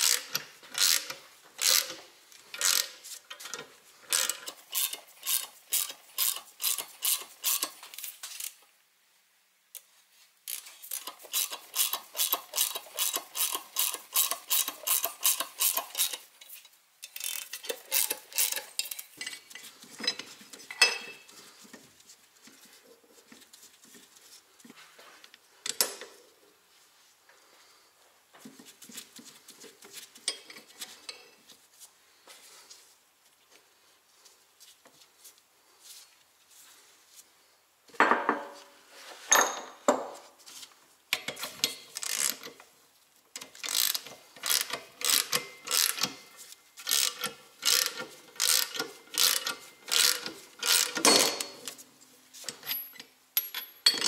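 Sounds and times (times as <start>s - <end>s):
ratchet wrench clicking: 0.0s - 2.0s, 2.6s - 3.0s, 4.1s - 7.8s, 10.5s - 16.3s, 17.0s - 19.1s, 41.9s - 42.5s, 43.4s - 46.2s, 46.8s - 51.5s
tools clinking on metal: 17.0s - 21.3s, 50.7s - 51.7s, 52.5s - 54.0s.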